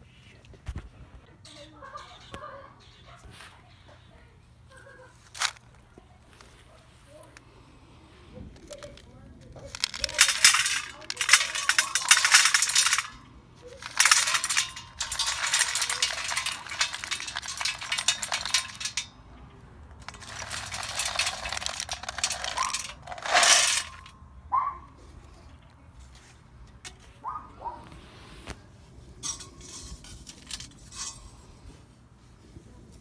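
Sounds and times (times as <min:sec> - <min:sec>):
wood pellets clattering on metal: 0:05.3 - 0:05.7, 0:08.6 - 0:24.1.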